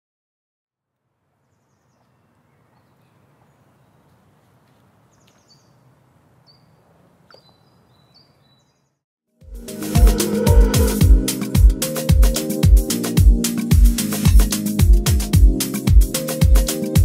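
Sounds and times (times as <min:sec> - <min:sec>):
low outdoor background noise: 0:00.8 - 0:08.8
high bird chirps: 0:05.1 - 0:09.0.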